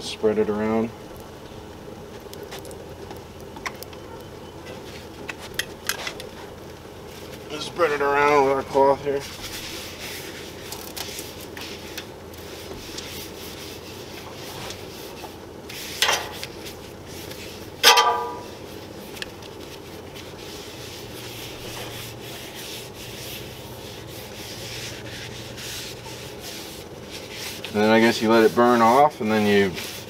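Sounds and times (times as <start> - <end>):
paper towel scrubbing griddle: 4.7 - 30.0
ringing metal clank: 17.8 - 18.5.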